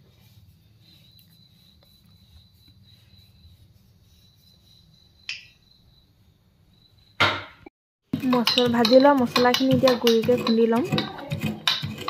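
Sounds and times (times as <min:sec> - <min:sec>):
cricket trill: 0:00.1 - 0:07.6
loud knock: 0:07.2 - 0:07.6.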